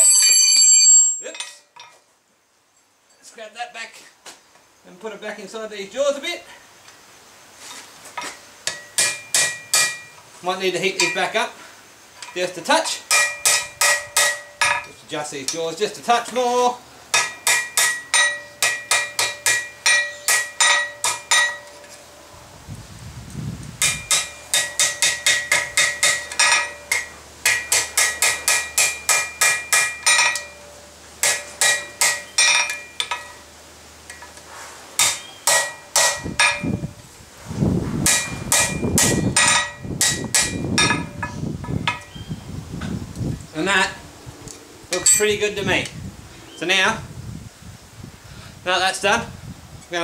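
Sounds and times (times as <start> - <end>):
hammer ringing on anvil: 8.7 - 10.1, 13.1 - 14.9, 17.2 - 21.8, 23.8 - 33.4, 35.0 - 36.8, 38.1 - 41.3.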